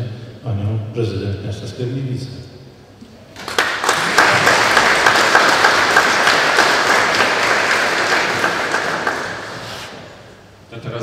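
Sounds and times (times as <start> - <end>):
audience applauding: 3.4 - 10.2.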